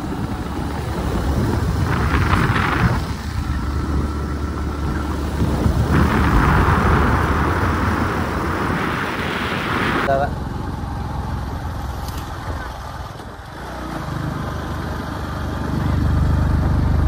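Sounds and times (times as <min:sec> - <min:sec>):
wind rushing: 0:00.0 - 0:10.1
motorcycle running: 0:00.0 - 0:17.0
road noise: 0:00.0 - 0:17.0.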